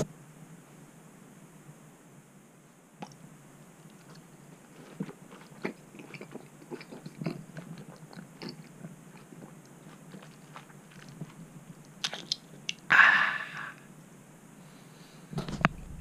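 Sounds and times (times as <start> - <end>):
person chewing: 3.9 - 12.9.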